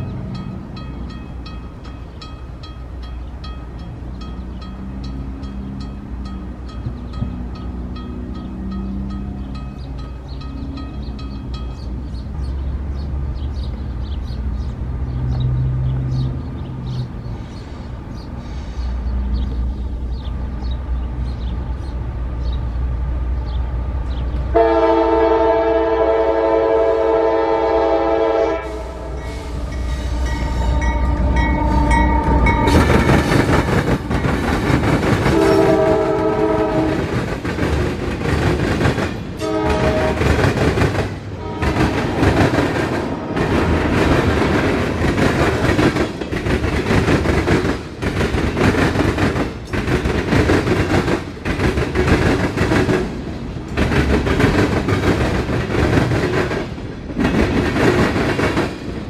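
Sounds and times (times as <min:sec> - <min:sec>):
diesel locomotive engines rumbling: 0:00.0 - 0:59.0
train air horn: 0:24.5 - 0:33.0, 0:35.2 - 0:37.1, 0:39.4 - 0:40.4, 0:41.4 - 0:42.2.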